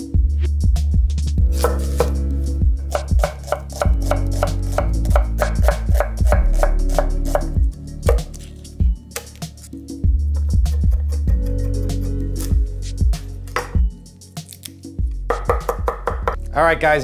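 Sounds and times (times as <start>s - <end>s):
knife chopping onion on wood: 1.5s - 2.2s, 2.9s - 8.4s, 15.3s - 16.4s.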